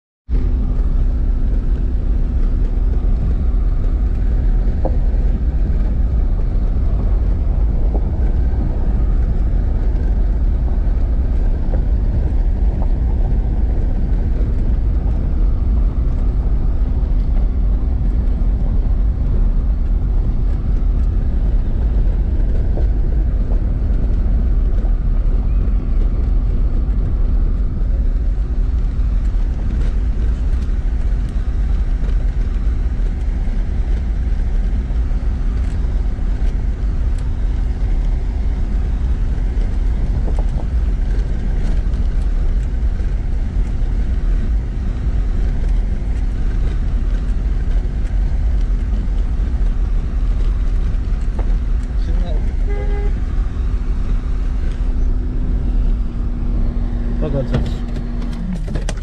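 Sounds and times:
car engine running: 0.3 - 59.0
tyre rumble on dirt road: 0.3 - 59.0.

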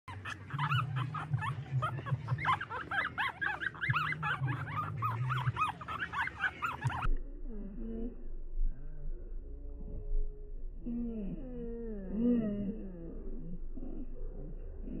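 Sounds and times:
puppies squeaking and whimpering: 0.1 - 7.1
low hum: 0.1 - 15.0.

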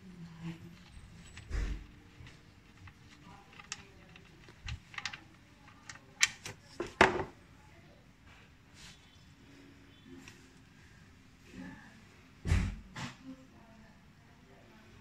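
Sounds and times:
light clicks and taps: 0.8 - 7.0.

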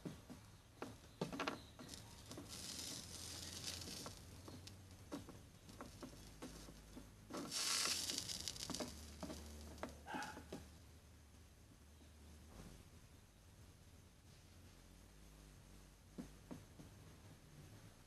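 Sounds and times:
soldering iron sizzling solder: 1.8 - 4.8, 7.4 - 9.8.

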